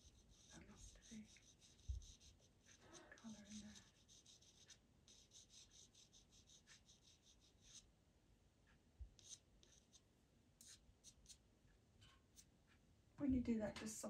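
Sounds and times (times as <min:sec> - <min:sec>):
pencil scratching on paper: 0:00.0 - 0:07.9, 0:09.2 - 0:10.0, 0:10.6 - 0:11.4.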